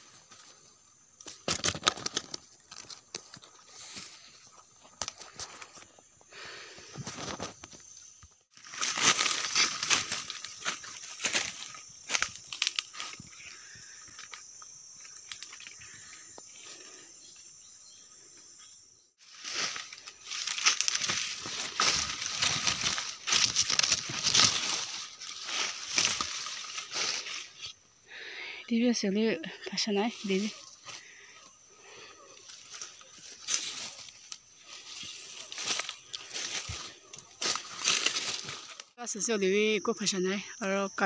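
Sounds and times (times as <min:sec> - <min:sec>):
footsteps crunching through dry leaves: 0:08.5 - 0:13.4, 0:19.2 - 0:27.8, 0:32.5 - 0:39.0
brushing past undergrowth: 0:19.2 - 0:27.8.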